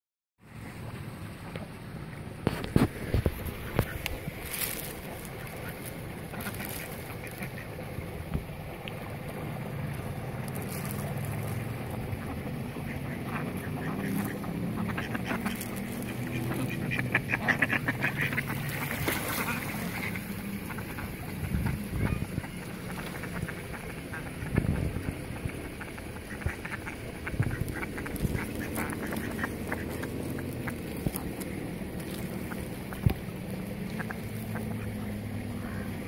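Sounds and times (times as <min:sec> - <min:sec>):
ducks quacking: 0:02.5 - 0:08.1, 0:10.5 - 0:36.0.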